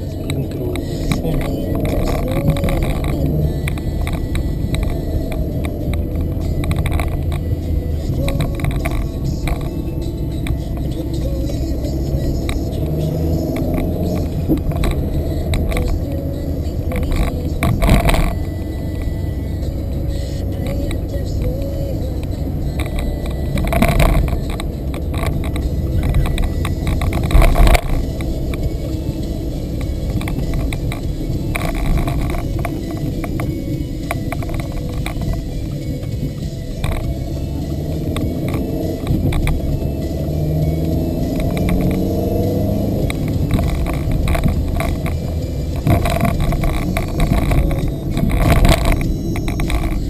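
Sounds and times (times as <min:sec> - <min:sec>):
car road and engine rumble: 0:00.0 - 0:50.0
small clicks and rattles: 0:00.0 - 0:50.0
light clicks and rattles: 0:19.9 - 0:39.8.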